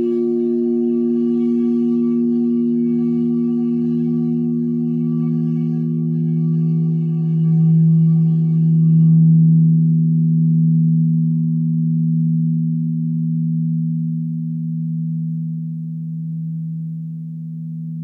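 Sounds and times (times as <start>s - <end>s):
singing bowl ringing: 0.0s - 16.6s.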